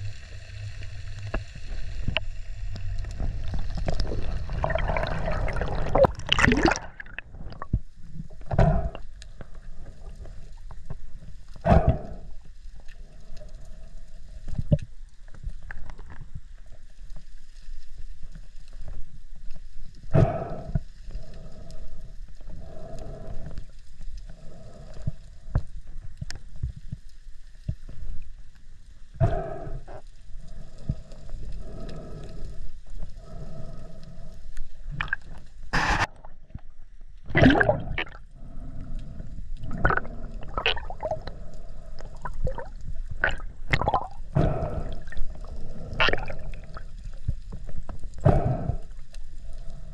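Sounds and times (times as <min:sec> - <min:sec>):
underwater low rumble: 0:00.0 - 0:49.9
gurgling splashes: 0:03.6 - 0:07.7, 0:34.9 - 0:36.1, 0:37.3 - 0:38.2, 0:39.6 - 0:41.3, 0:42.2 - 0:45.4, 0:46.0 - 0:46.9.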